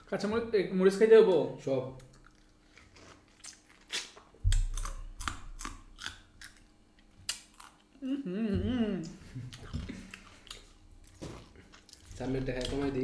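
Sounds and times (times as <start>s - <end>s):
man chewing lime: 2.0s - 8.0s, 9.0s - 13.0s.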